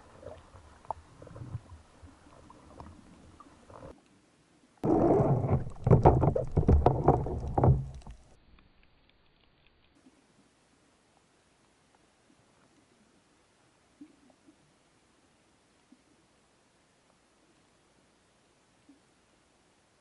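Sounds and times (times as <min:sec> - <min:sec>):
water lapping: 0:00.0 - 0:04.0
underwater churning and bubbling: 0:00.0 - 0:04.1, 0:04.8 - 0:08.4
small underwater clicks: 0:04.8 - 0:10.2.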